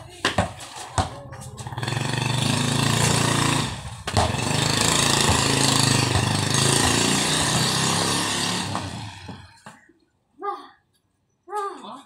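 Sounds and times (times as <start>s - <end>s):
small engine running: 1.6s - 9.5s.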